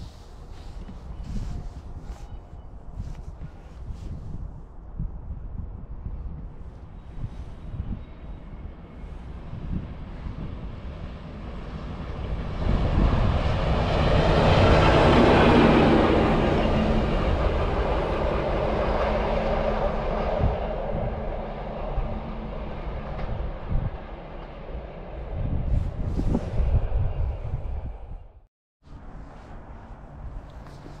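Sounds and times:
wind buffeting microphone: 0.0s - 31.0s
locomotive passing at speed: 9.4s - 28.1s.

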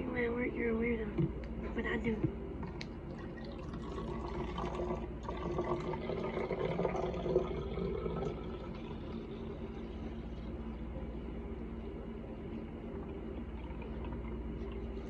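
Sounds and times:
juice pouring into bottle: 3.1s - 10.6s, 13.0s - 15.0s.

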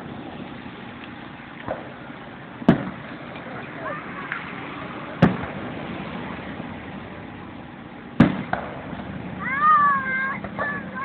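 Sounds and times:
firework shells bursting: 1.0s - 4.6s, 5.2s - 6.8s, 8.0s - 11.0s
small firework pop: 1.6s - 2.0s, 2.7s - 3.5s.

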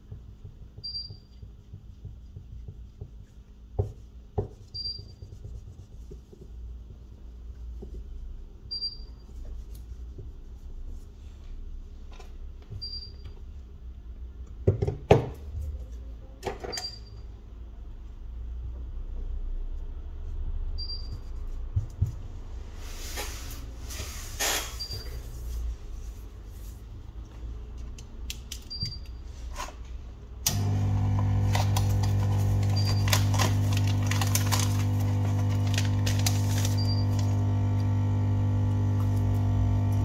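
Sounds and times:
electric machine hum: 30.5s - 40.0s.

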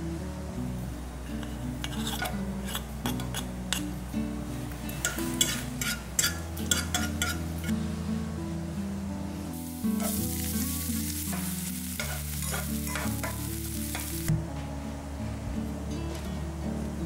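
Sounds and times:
food sizzling in frying pan: 5.0s - 7.5s, 9.5s - 14.3s.

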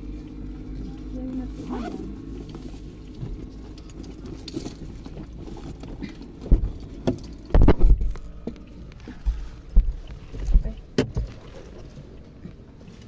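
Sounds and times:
rummaging and rattling in a car: 0.0s - 13.0s
heavy bumps and thuds: 4.7s - 8.6s.

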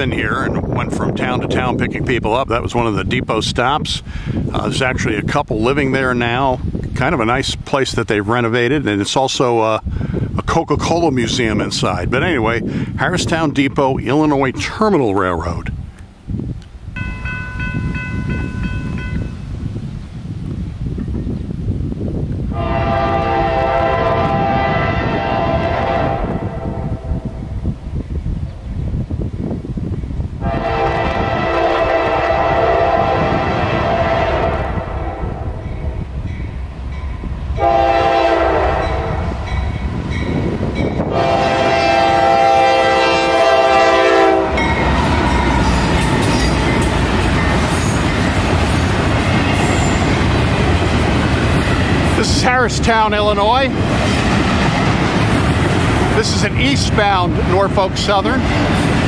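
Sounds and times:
train wheels rumbling on rail: 15.4s - 59.0s
locomotive horn blast: 22.5s - 27.3s, 30.4s - 35.6s, 37.6s - 39.4s, 41.1s - 47.9s.

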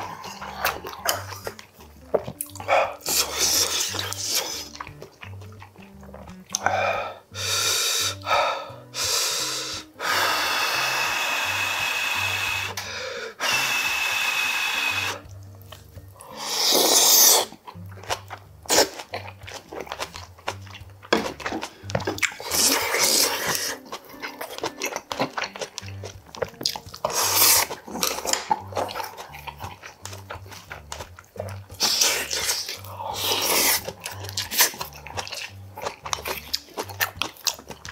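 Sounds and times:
chewing clicks: 0.0s - 6.8s, 17.1s - 37.9s
person blowing on food: 2.6s - 4.8s, 6.6s - 15.4s, 16.2s - 17.6s, 21.5s - 23.9s, 27.0s - 29.5s, 31.4s - 35.6s.

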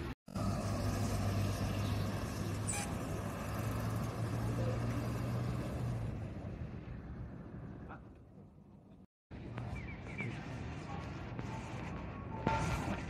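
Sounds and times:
bus engine humming: 0.0s - 9.0s
street traffic: 0.0s - 13.0s.

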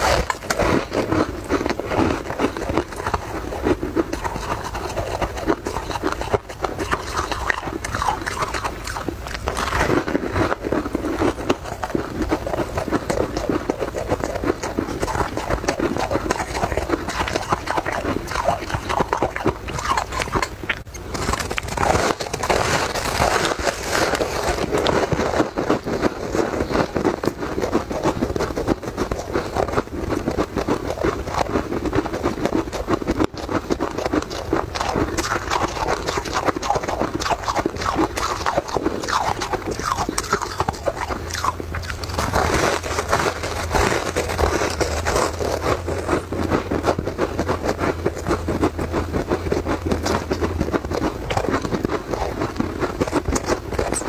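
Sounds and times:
chewing crisp grain cake: 0.0s - 54.0s.

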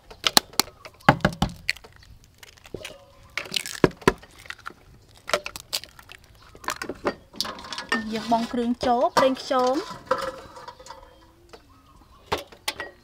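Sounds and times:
eggshells cracking on metal bowl: 0.0s - 8.1s.

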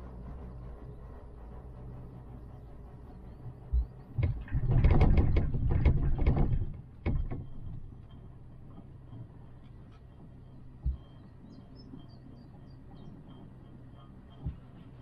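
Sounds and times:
chairlift low rumble: 0.0s - 15.0s
clattering clicks and knocks: 4.2s - 7.8s.

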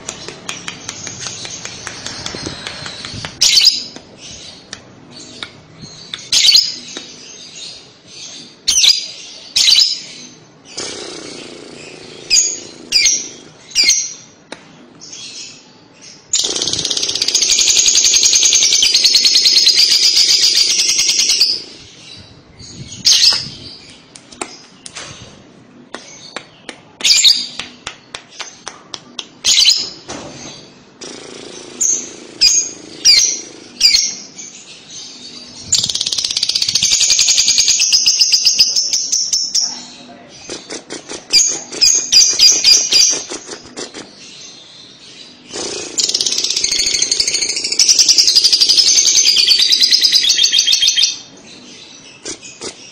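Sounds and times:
lovebird chirps: 0.1s - 4.7s
lovebird chattering trill: 16.4s - 21.8s.

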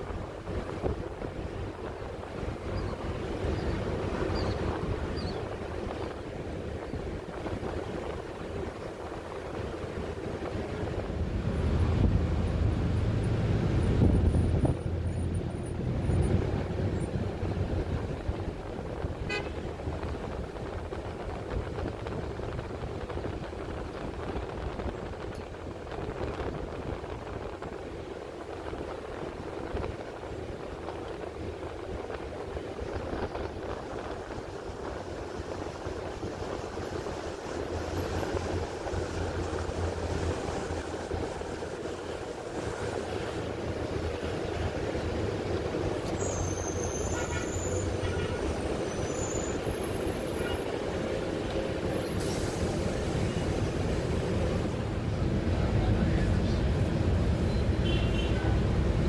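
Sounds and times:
low rumble of road traffic: 0.0s - 59.0s
car horn toot: 19.2s - 19.6s, 46.9s - 48.5s, 57.8s - 58.5s.

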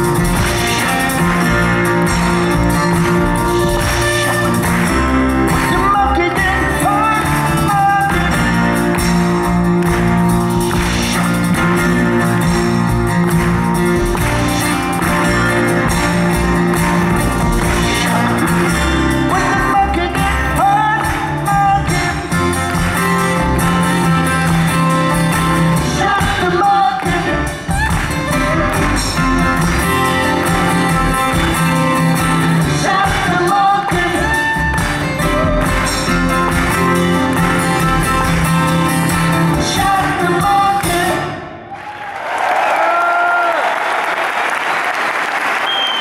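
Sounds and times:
person singing: 0.0s - 9.4s, 17.5s - 22.7s, 23.7s - 38.2s, 38.8s - 41.5s
live rock band playing: 0.0s - 41.7s.

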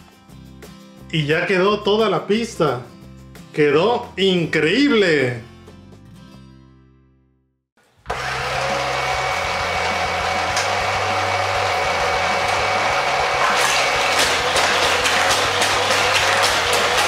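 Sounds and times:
toy track motors whirring: 8.1s - 17.0s.

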